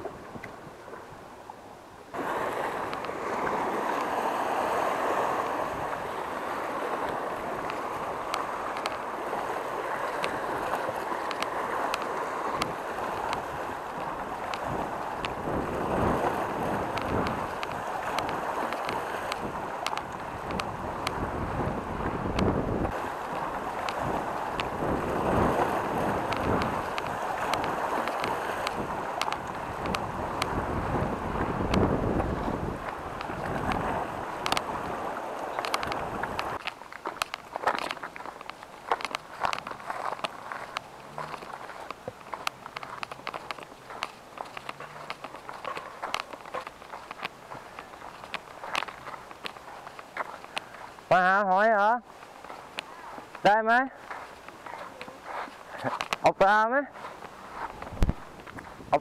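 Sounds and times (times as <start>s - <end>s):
waves washing over rocks: 0.0s - 59.0s
wind buffeting microphone: 2.1s - 36.7s, 57.0s - 59.0s
water splashing among rocks: 2.1s - 58.8s
sharp ticks: 11.2s - 13.4s, 16.9s - 21.2s, 26.3s - 30.6s, 35.6s - 50.8s.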